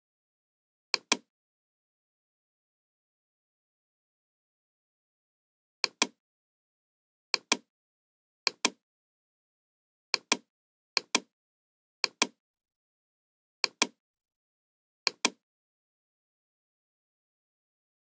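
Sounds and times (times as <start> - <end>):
computer mouse clicks: 1.0 - 1.3, 5.8 - 6.2, 7.4 - 7.7, 8.5 - 8.8, 10.2 - 11.3, 12.0 - 12.4, 13.6 - 14.0, 15.1 - 15.4.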